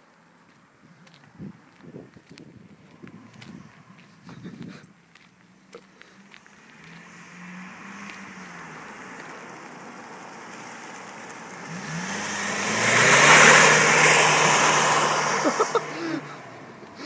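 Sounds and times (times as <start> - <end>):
car engine accelerating: 5.5 - 17.0.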